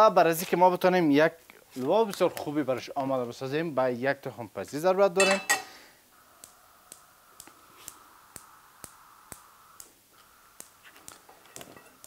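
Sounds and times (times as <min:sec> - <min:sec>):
gas hob spark igniter clicking: 0:06.4 - 0:12.0.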